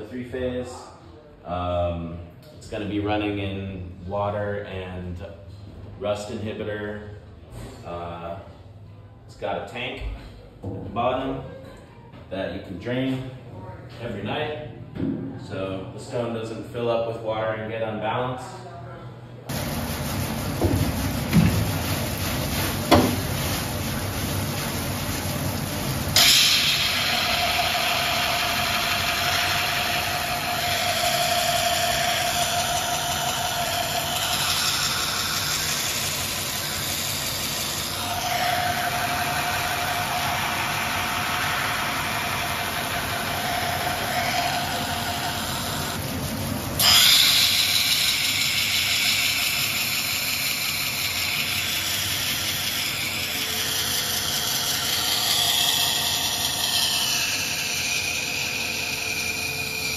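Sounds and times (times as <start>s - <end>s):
wet grinder whirring: 19.5s - 59.9s.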